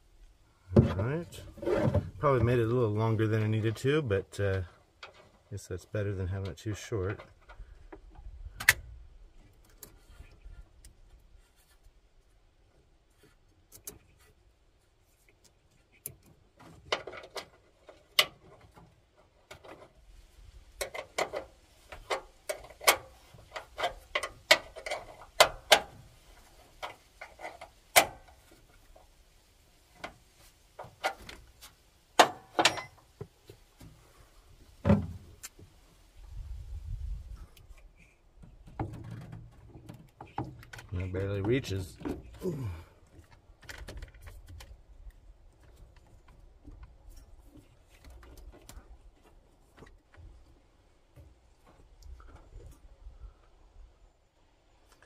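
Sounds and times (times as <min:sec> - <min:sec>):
hand tools and metal parts clanking: 0:20.7 - 0:29.0, 0:29.9 - 0:34.2.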